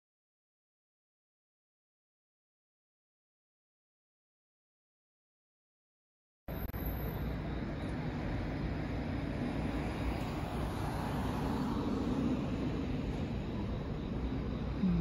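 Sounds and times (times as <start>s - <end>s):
distant city traffic hum: 6.5s - 15.0s.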